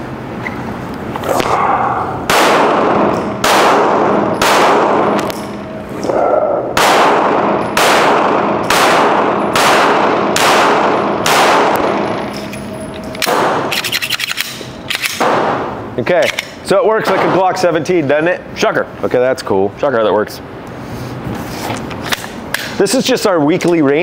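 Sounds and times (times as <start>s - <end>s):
pistol shots echoing indoors: 2.2s - 5.8s, 6.7s - 15.8s.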